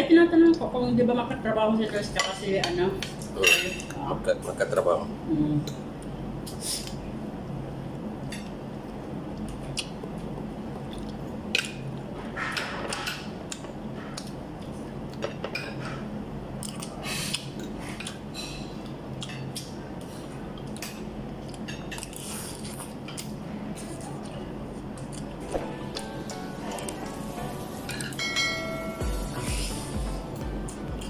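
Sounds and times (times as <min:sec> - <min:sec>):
steady low hum: 0:00.0 - 0:31.0
chewing: 0:10.8 - 0:11.2.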